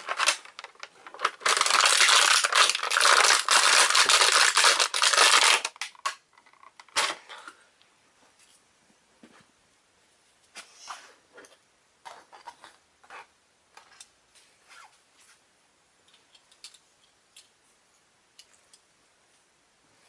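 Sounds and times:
plastic toy parts clicking: 0.0 - 7.2, 16.1 - 17.6.

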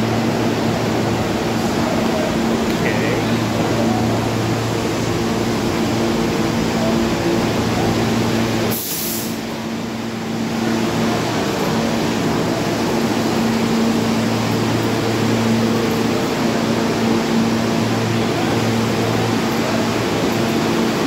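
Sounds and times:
subway train rumbling past: 0.0 - 21.0
sharp hiss: 8.7 - 9.4.

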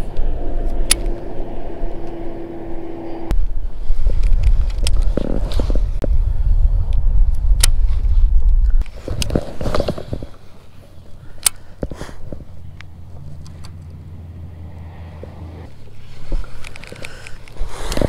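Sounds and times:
wind rumbling on microphone: 0.0 - 11.1
fishing rod and reel clicking: 15.7 - 18.0.

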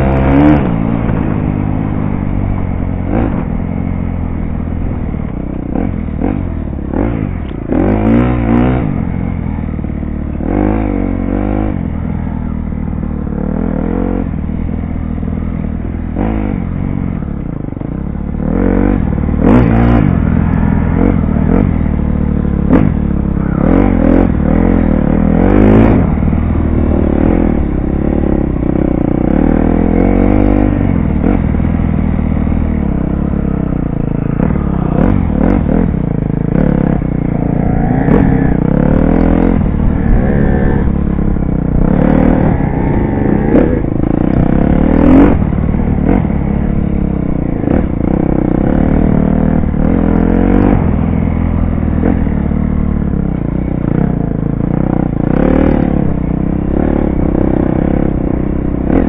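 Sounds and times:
dirt bike engine revving: 5.7 - 9.5, 18.4 - 53.0, 53.6 - 59.0.

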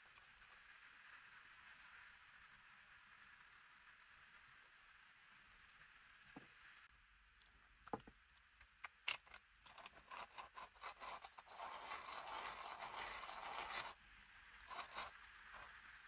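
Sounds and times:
faint scraping of plastic parts: 7.9 - 14.0, 14.6 - 16.0.

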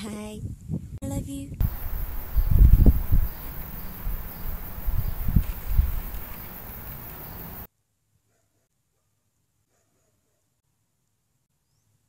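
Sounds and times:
insects chirping: 1.6 - 7.7.

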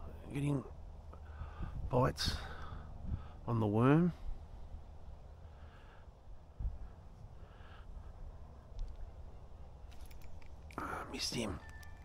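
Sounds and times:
faint low rumble on microphone: 0.0 - 12.0.

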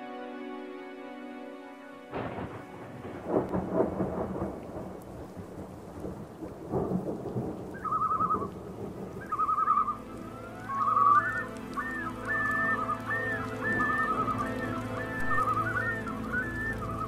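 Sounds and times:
rumbling crackling noise: 2.1 - 17.0
warbling whistle-like call: 7.7 - 8.5, 9.2 - 17.0.

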